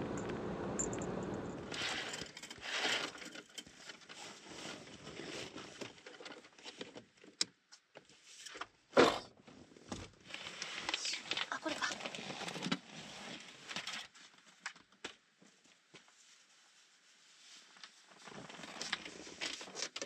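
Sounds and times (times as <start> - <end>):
low running hum: 0.0 - 1.8.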